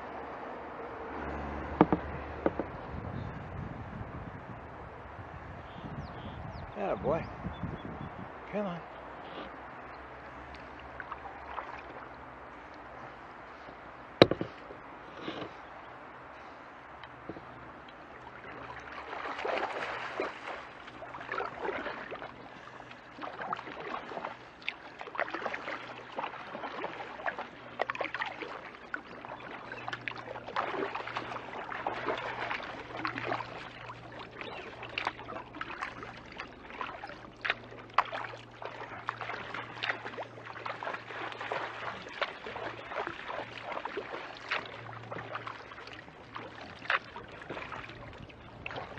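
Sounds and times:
kayak paddle strokes: 1.1s - 3.2s, 10.3s - 48.9s
water splashing and dripping: 10.3s - 12.8s, 17.0s - 48.9s.

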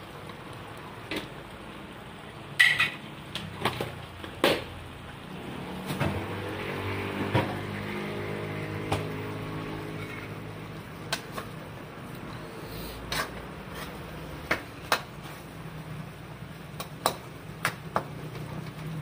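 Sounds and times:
stew bubbling in a pot: 0.0s - 19.0s
ladle clinking against a wok: 2.6s - 3.0s.

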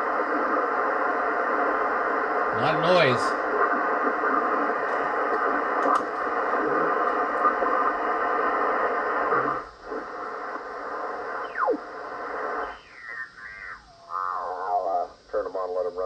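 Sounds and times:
radio static and signals: 0.0s - 16.0s
radio whistles gliding in pitch: 11.0s - 14.8s.

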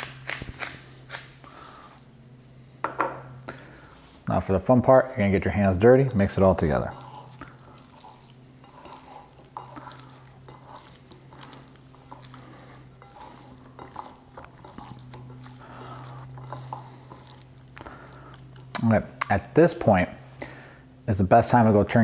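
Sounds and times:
steady low hum: 0.0s - 21.7s
hands squishing raw chicken: 5.8s - 19.4s.

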